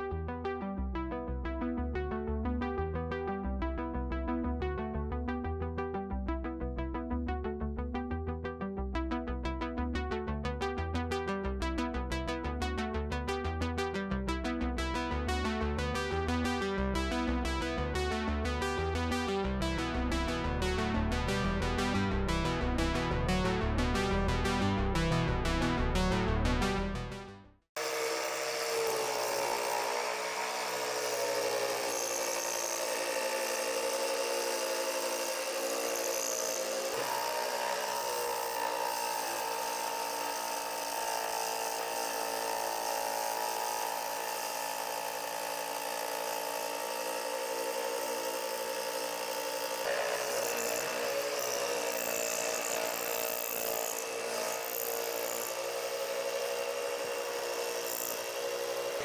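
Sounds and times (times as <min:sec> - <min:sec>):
jigsaw cutting wood: 0:27.8 - 0:59.0.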